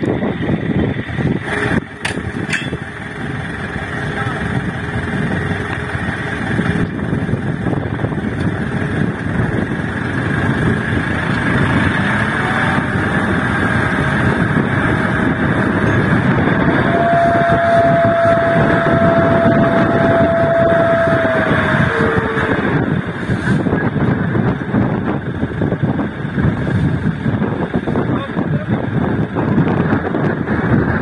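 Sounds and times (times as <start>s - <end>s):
diesel truck engine under load: 0.0s - 31.0s
steady high whine: 0.0s - 31.0s.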